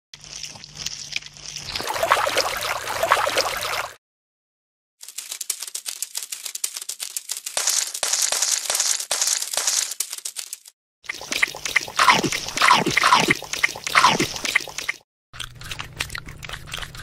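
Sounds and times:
rapid crackling clicks: 5.0s - 15.0s
wet mud crackling: 11.1s - 15.0s.

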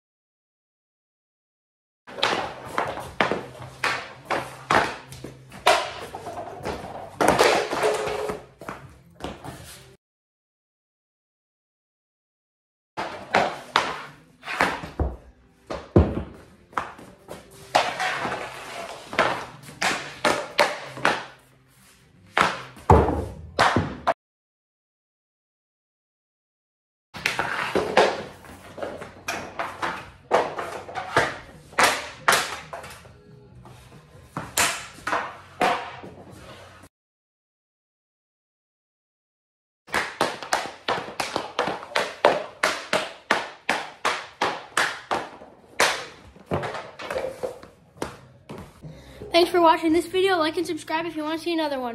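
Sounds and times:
hockey stick slap shots: 2.1s - 8.8s, 13.0s - 21.4s, 22.3s - 24.2s, 27.2s - 33.1s, 34.4s - 36.2s, 39.9s - 48.6s
pucks hitting boards: 2.1s - 9.8s, 13.0s - 21.4s, 22.3s - 24.2s, 27.2s - 33.1s, 33.8s - 36.8s, 39.9s - 48.8s
stick and puck scraping: 2.1s - 10.0s, 13.0s - 23.9s, 27.2s - 36.9s, 39.9s - 48.8s
hockey stick blade tapping: 39.9s - 48.2s.

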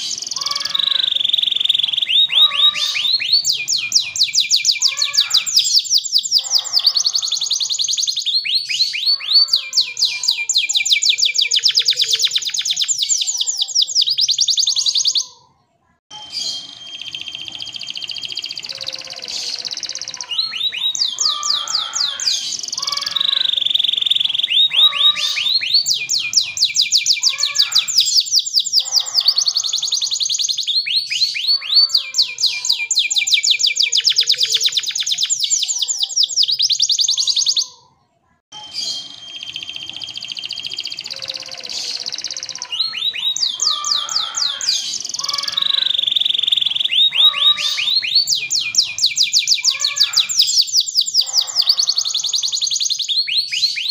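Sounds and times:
canary singing trills: 0.0s - 53.9s.

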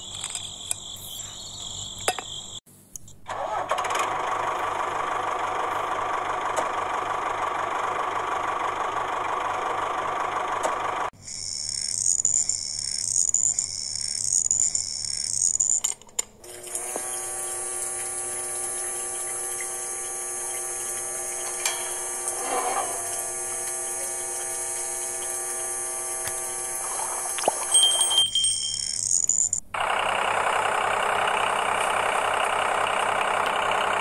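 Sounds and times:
small water pump whining: 3.3s - 34.0s
rhythmic pulsing engine-like sound: 17.0s - 27.4s.

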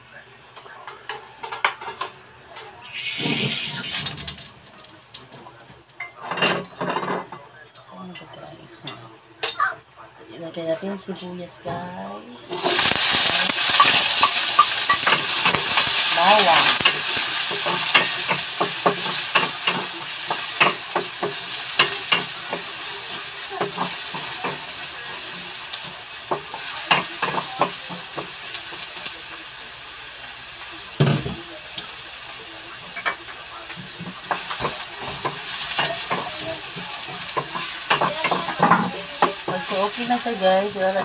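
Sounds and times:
onion and garlic sizzling in oil: 2.8s - 5.2s, 12.5s - 41.0s.

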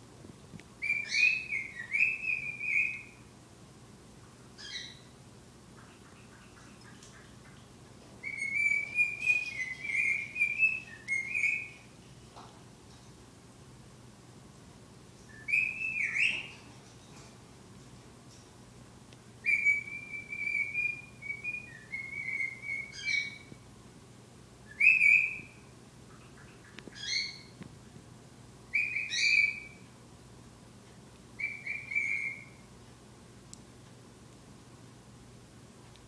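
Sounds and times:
cockatiel whistling: 0.8s - 3.2s, 4.6s - 5.1s, 8.2s - 11.8s, 15.3s - 16.6s, 19.4s - 23.5s, 24.7s - 25.6s, 26.9s - 27.5s, 28.7s - 29.8s, 31.4s - 32.6s.

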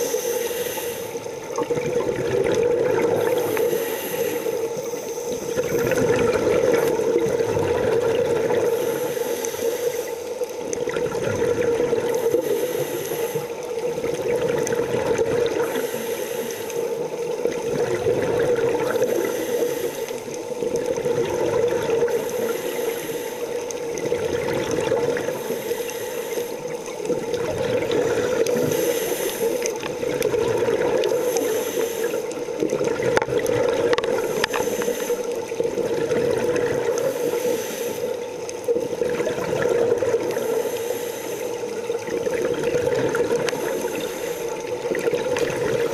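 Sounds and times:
diver breathing through regulator: 0.0s - 1.4s, 2.7s - 10.4s, 12.0s - 13.8s, 15.5s - 17.2s, 18.8s - 20.6s, 21.9s - 23.9s, 25.0s - 26.9s, 27.7s - 30.2s, 30.8s - 32.8s, 33.6s - 35.5s, 36.4s - 38.3s, 40.1s - 41.8s, 43.3s - 44.8s.

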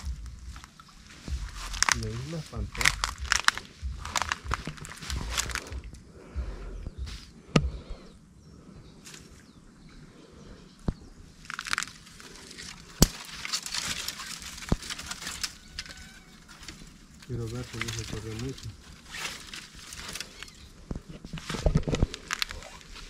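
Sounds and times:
dry grass rustling and crackling: 0.0s - 7.7s, 11.0s - 23.0s
sharp snaps: 1.5s - 6.0s.

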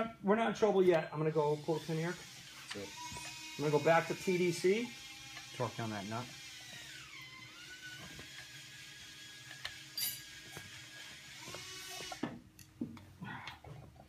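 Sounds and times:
metallic tool clinks: 10.0s - 10.3s.

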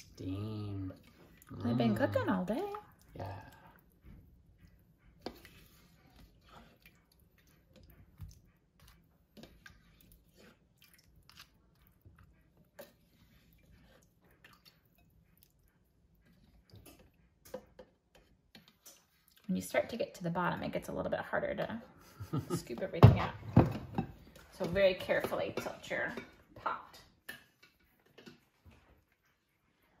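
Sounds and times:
juice dripping through spoon: 5.2s - 19.5s.

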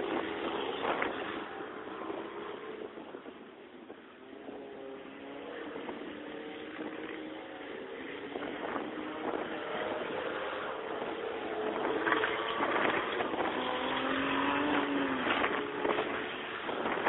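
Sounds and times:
diesel truck engine racing: 4.8s - 17.0s.

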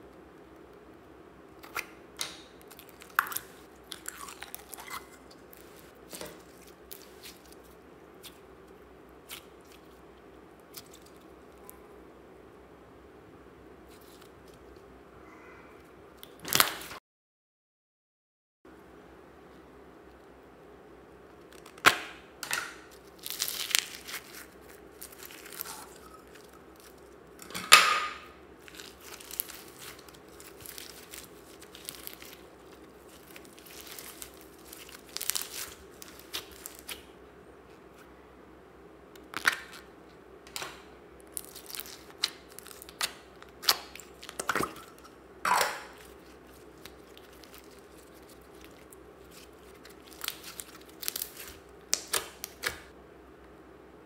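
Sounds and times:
slime squishing and crackling: 1.6s - 11.9s, 22.8s - 37.2s, 39.2s - 39.9s, 40.5s - 52.9s.

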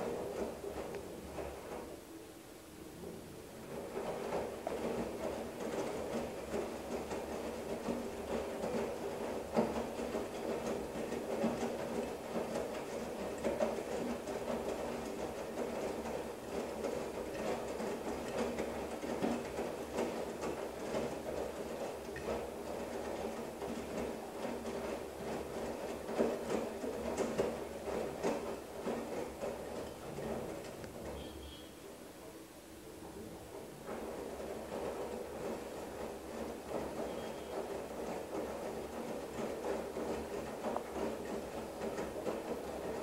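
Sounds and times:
washing machine motor and drum hum: 0.0s - 43.0s
wet clothes knocking in drum: 3.7s - 31.2s.

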